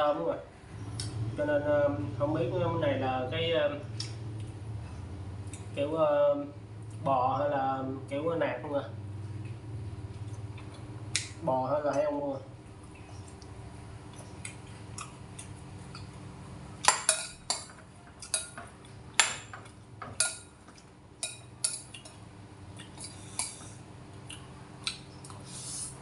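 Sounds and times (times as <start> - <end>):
faint steady hum: 0.0 - 26.0
cutlery clinking on ceramic bowl: 16.9 - 20.5, 21.2 - 22.2.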